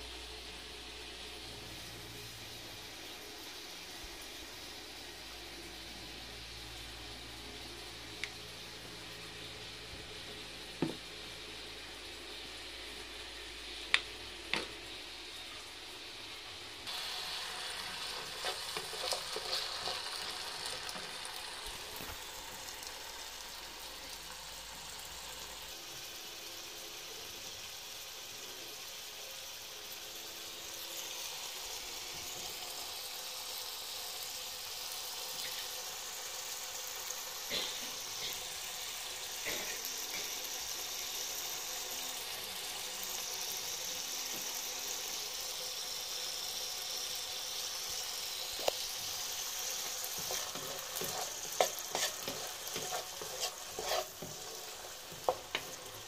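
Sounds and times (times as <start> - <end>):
potatoes sizzling in oil: 0.0 - 56.0
wooden spatula stirring: 18.2 - 20.0, 49.8 - 56.0.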